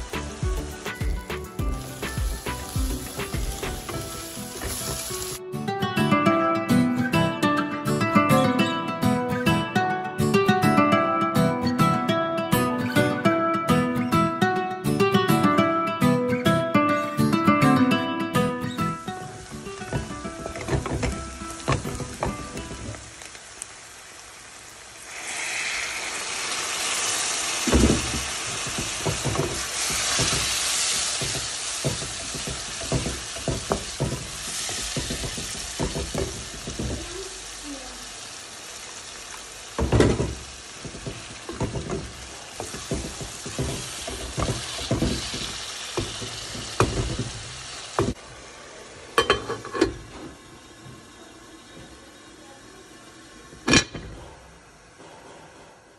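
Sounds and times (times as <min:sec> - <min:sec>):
water hissing in hot pan: 0:00.0 - 0:05.4, 0:18.6 - 0:55.0
masala sizzling in a pan: 0:00.0 - 0:05.5, 0:17.0 - 0:55.0.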